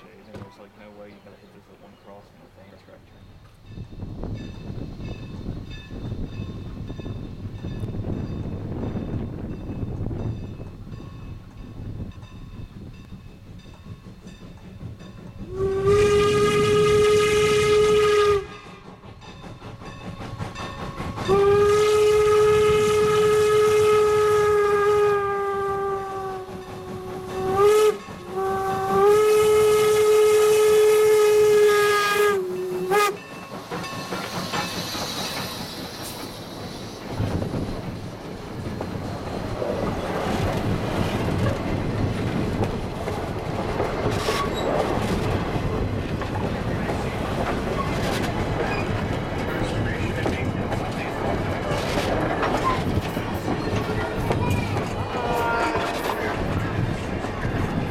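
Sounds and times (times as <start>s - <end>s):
train cars rolling past: 0.0s - 57.9s
train rumble and hiss: 0.0s - 57.9s
steam whistle blasts: 15.4s - 18.8s, 21.2s - 33.2s.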